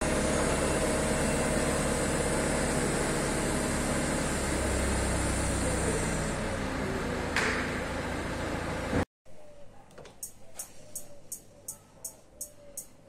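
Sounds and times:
diesel engine running: 0.0s - 9.0s.

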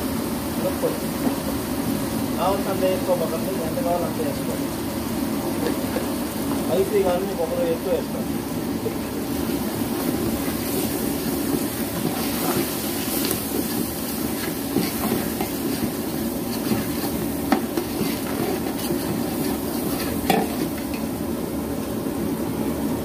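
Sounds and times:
faint sizzling: 0.0s - 21.2s.

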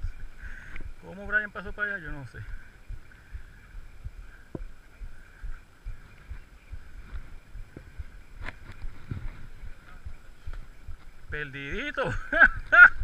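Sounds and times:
background hiss: 0.0s - 13.0s
footsteps and camera handling thumps: 5.9s - 11.2s.

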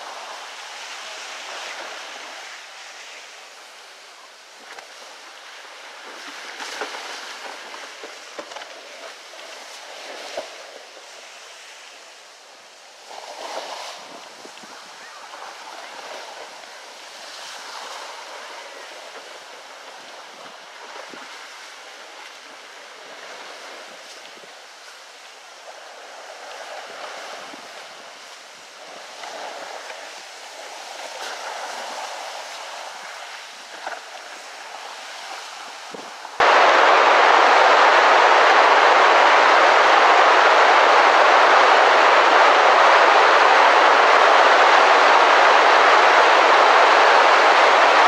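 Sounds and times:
loud steady rushing: 36.4s - 48.0s.

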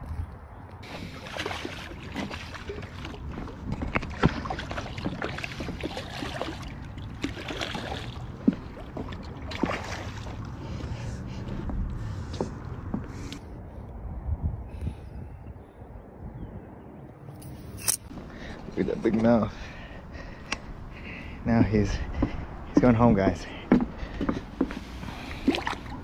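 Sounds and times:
fish splashing in water: 0.8s - 10.6s.

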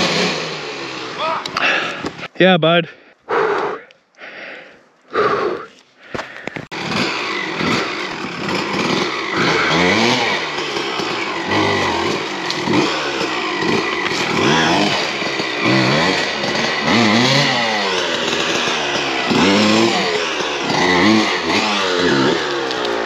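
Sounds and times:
dirt bike engine revving: 0.0s - 2.3s, 6.7s - 23.0s.

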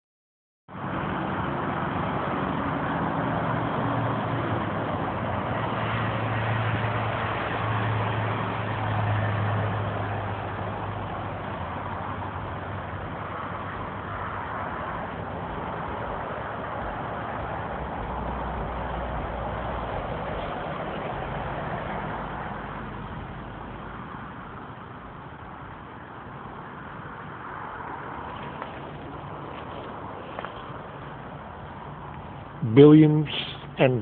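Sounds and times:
traffic noise: 0.7s - 34.0s.

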